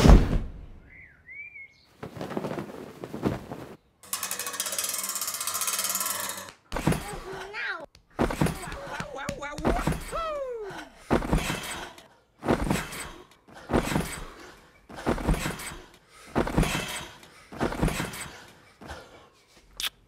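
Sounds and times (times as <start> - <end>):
bodies thudding on trampoline: 2.0 - 3.8, 8.2 - 10.2, 11.1 - 14.3, 14.9 - 18.3.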